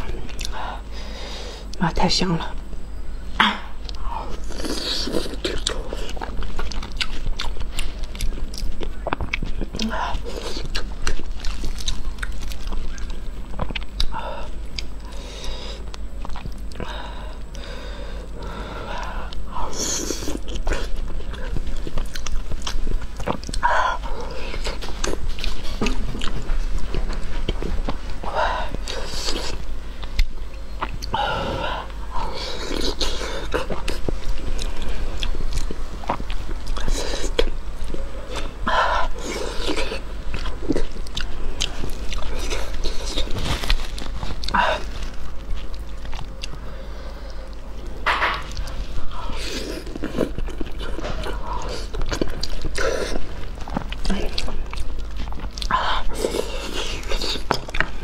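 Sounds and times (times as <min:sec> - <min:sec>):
wet chewing: 0:00.0 - 0:00.9, 0:03.8 - 0:58.0.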